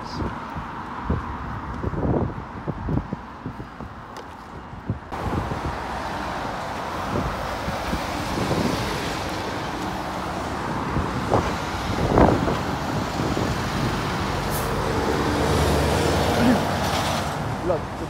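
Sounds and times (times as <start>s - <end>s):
road traffic noise: 0.0s - 18.0s
heavy lorry passing: 5.1s - 18.0s.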